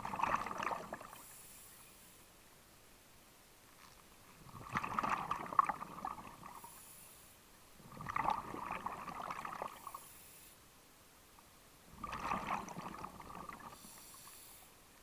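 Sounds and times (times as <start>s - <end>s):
bubbling underwater exhalation: 0.0s - 1.1s, 4.4s - 6.6s, 7.8s - 9.8s, 11.9s - 13.8s.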